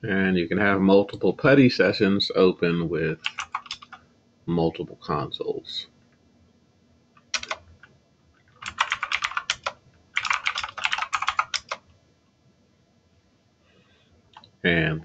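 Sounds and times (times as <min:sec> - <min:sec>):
typing on computer keyboard: 0:03.2 - 0:04.0, 0:07.2 - 0:11.8.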